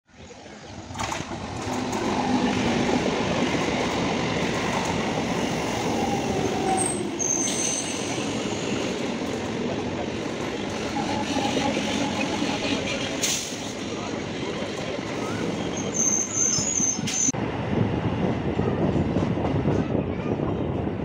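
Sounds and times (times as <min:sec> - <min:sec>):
train wheels rumbling on rails: 0:00.3 - 0:21.0
high squeal: 0:05.9 - 0:08.6, 0:15.2 - 0:17.4.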